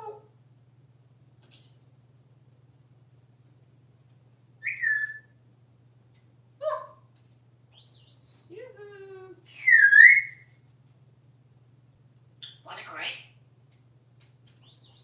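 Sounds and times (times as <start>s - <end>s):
parrot squawks: 4.6s - 5.3s, 9.6s - 10.4s, 12.4s - 13.3s
parrot whistling: 4.6s - 5.3s, 9.6s - 10.4s.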